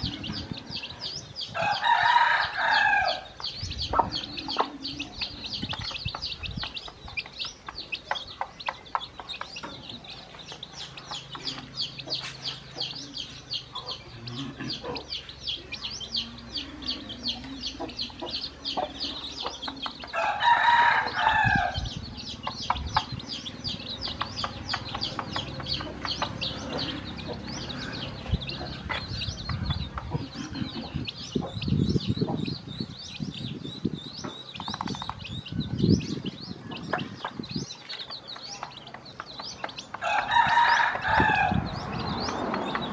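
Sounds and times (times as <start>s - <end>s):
chicks peeping: 0.0s - 42.9s
rooster crowing: 1.6s - 3.3s, 20.1s - 21.8s, 40.0s - 41.7s
hen clucking: 3.4s - 20.3s, 21.0s - 32.6s.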